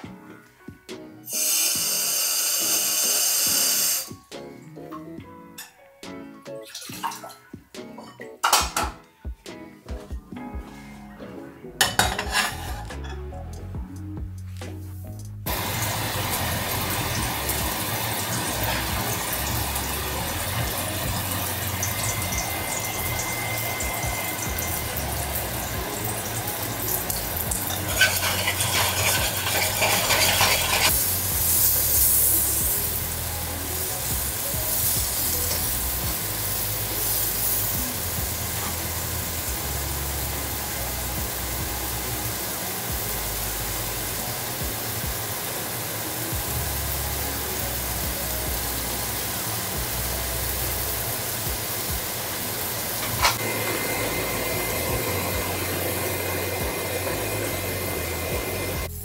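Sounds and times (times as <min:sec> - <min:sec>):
food sizzling in a frying pan: 0:01.3 - 0:04.2, 0:11.8 - 0:13.1, 0:15.5 - 0:59.0
loud hiss: 0:01.3 - 0:04.2, 0:15.5 - 0:59.0.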